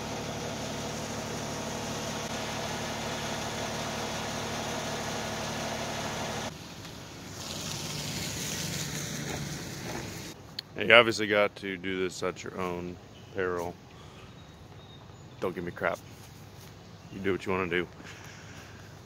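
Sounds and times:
diesel engine idling: 0:00.0 - 0:10.4.

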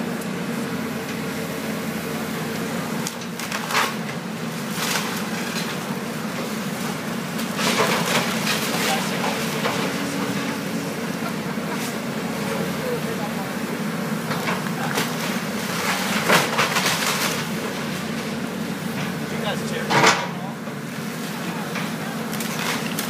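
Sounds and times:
excavator diesel engine running: 0:00.0 - 0:23.0
timber cracking and splintering: 0:14.4 - 0:17.5, 0:22.3 - 0:23.0.

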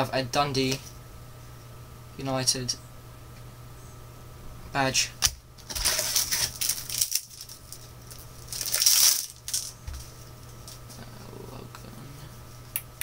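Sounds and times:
wrapper rustling and tearing: 0:05.6 - 0:10.9.

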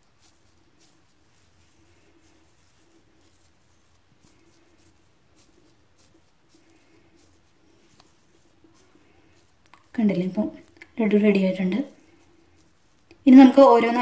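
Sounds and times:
hands rolling crumbly mixture: 0:00.0 - 0:14.0
low faint hum: 0:00.0 - 0:14.0.

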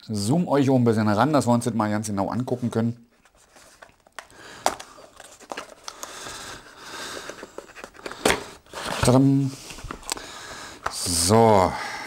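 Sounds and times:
cardboard rustling and scraping: 0:03.2 - 0:04.2, 0:07.2 - 0:10.1.

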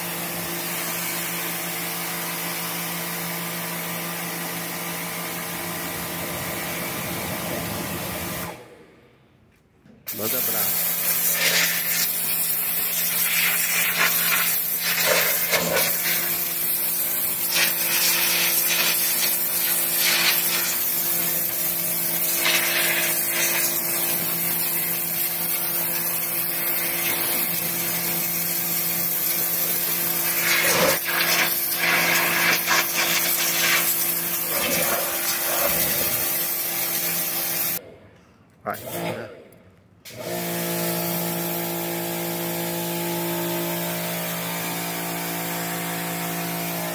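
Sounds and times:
pressure washer motor hum: 0:00.0 - 0:08.8, 0:10.1 - 0:37.8, 0:40.1 - 0:46.9
water jet hissing on ground: 0:10.1 - 0:37.8.

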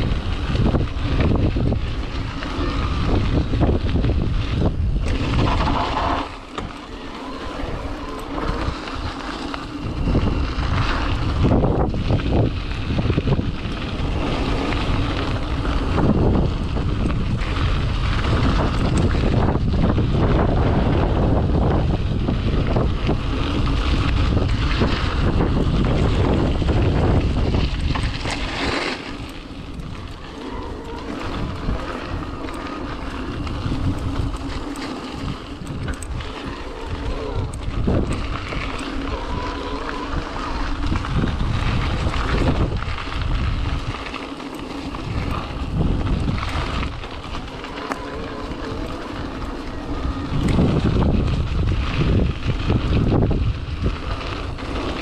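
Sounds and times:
wind buffeting microphone: 0:00.0 - 0:55.0
bike knocks and clatters: 0:03.1 - 0:06.8.

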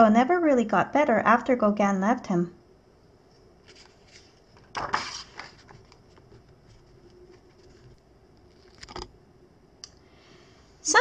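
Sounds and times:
faint paper rustles: 0:03.3 - 0:09.1
book page turning: 0:03.6 - 0:09.1.

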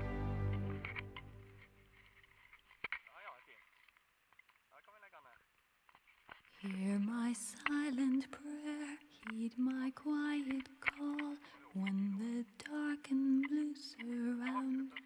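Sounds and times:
person singing slow melody: 0:00.0 - 0:01.3.

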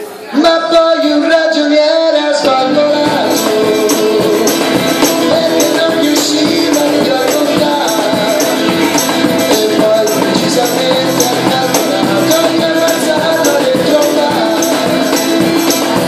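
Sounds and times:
cajon beat: 0:00.4 - 0:16.0
strummed acoustic guitar: 0:02.3 - 0:16.0
tambourine jingling: 0:03.0 - 0:16.0.

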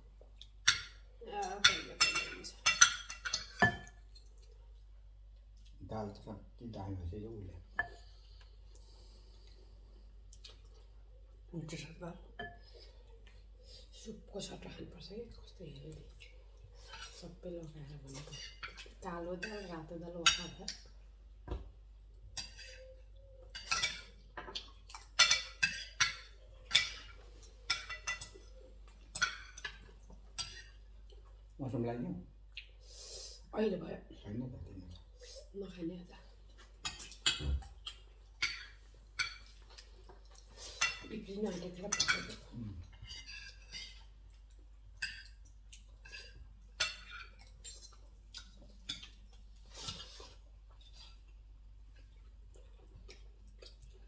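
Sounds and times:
cutlery clinking on plates: 0:00.6 - 0:04.0, 0:22.4 - 0:30.8, 0:41.8 - 0:44.0, 0:45.0 - 0:51.2.

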